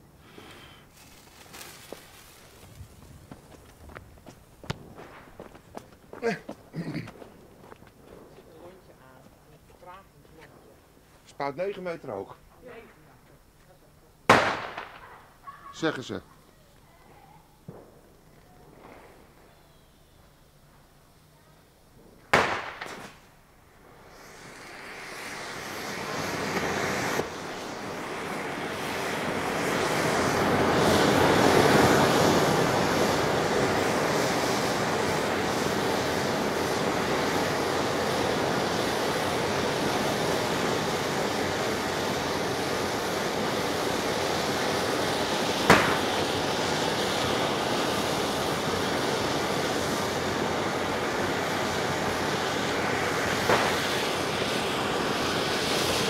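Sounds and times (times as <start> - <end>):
firework burst: 0.0 - 8.8, 14.3 - 15.4, 21.9 - 56.0
firework hissing spray: 0.0 - 12.8, 14.3 - 15.2, 22.0 - 56.0
sharp crack: 14.3 - 15.3, 22.3 - 23.3, 45.6 - 46.2.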